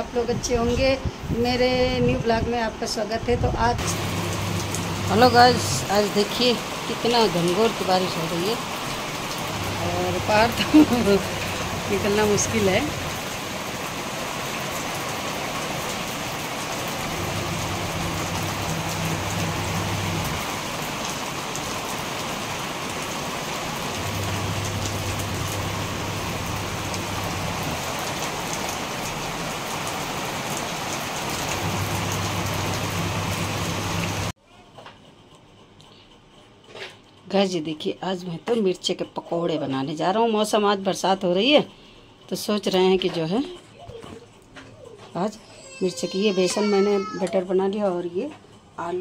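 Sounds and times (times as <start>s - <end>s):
low hum: 3.8s - 5.9s, 9.2s - 13.5s, 16.8s - 20.8s, 23.8s - 28.3s, 31.4s - 34.3s
heavy rain splashing on concrete: 3.8s - 34.4s.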